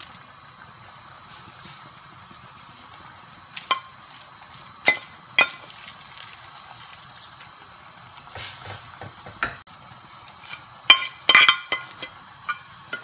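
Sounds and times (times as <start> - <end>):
metal spoon clinking on pot: 10.9 - 13.0.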